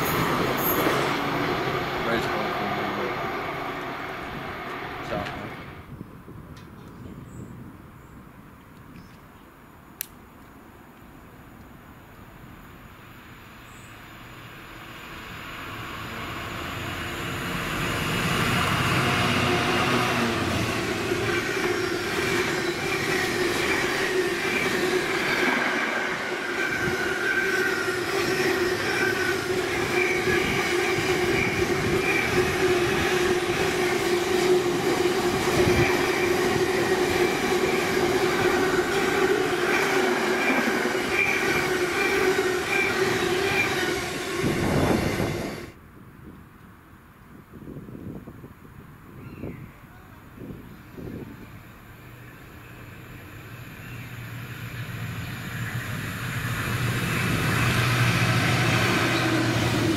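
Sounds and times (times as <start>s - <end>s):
train wheel squeal: 0.0s - 1.3s, 14.9s - 45.7s, 52.5s - 59.9s
train running past: 0.0s - 6.0s, 11.8s - 45.8s, 50.4s - 59.9s.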